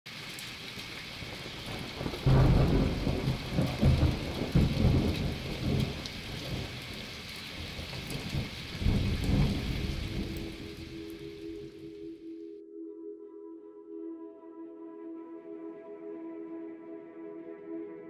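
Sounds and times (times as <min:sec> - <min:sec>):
rain falling: 0:00.1 - 0:12.2
thunder rumbling: 0:01.2 - 0:11.9.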